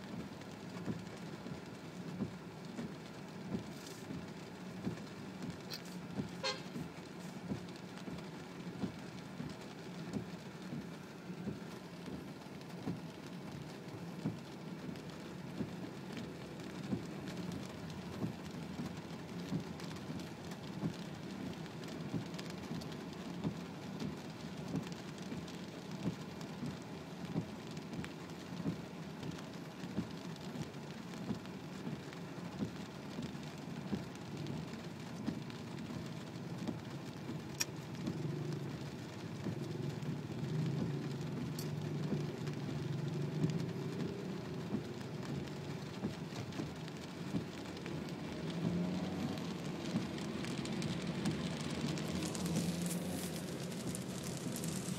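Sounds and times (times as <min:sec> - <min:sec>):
heavy rain on car roof: 0:00.0 - 0:54.9
windshield wipers sweeping: 0:00.0 - 0:54.9
engine and tyre drone: 0:35.4 - 0:54.9.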